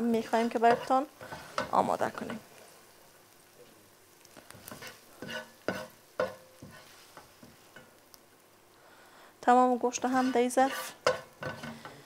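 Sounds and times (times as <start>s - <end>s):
faint sizzle: 0.0s - 12.0s
spatula scraping frying pan: 0.1s - 2.5s, 4.5s - 8.0s, 9.9s - 12.0s.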